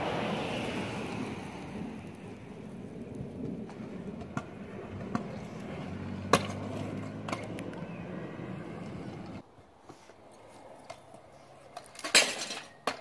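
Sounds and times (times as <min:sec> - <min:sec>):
scooter wheels rolling on concrete: 0:00.0 - 0:13.0
scooter clacks: 0:02.0 - 0:09.4, 0:10.8 - 0:13.0.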